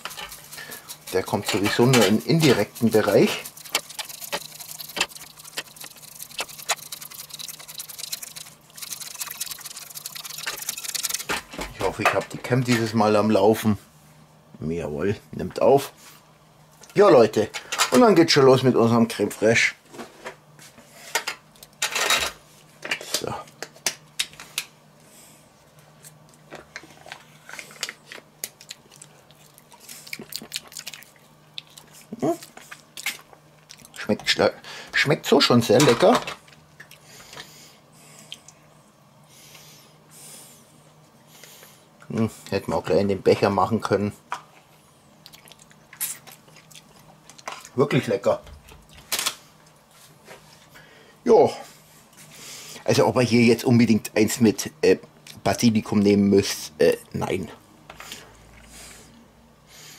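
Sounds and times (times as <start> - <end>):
cup crinkles and clicks: 1.3 - 11.5.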